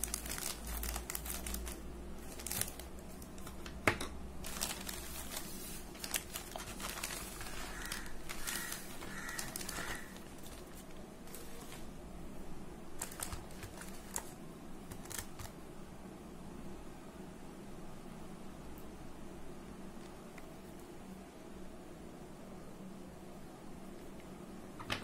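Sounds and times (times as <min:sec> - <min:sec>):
plastic bag crinkling: 0:00.0 - 0:03.8, 0:04.4 - 0:12.0, 0:13.0 - 0:15.5.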